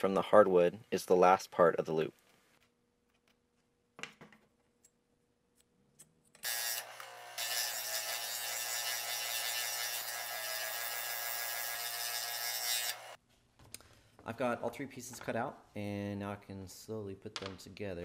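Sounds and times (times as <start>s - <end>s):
scroll saw cutting wood: 6.4s - 13.2s.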